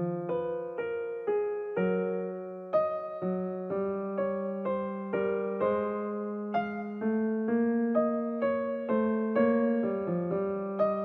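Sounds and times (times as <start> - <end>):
slow gentle piano melody: 0.0 - 11.0.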